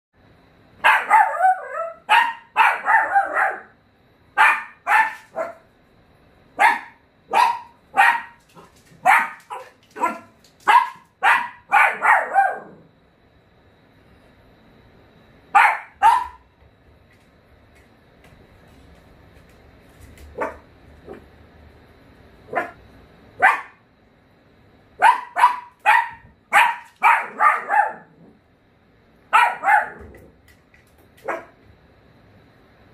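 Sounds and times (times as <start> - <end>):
dog barking sharply: 25.0 - 28.0, 29.3 - 30.1.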